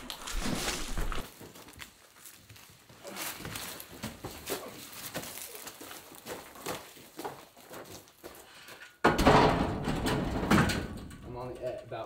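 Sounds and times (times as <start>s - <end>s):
footsteps on gravel: 0.0s - 8.7s.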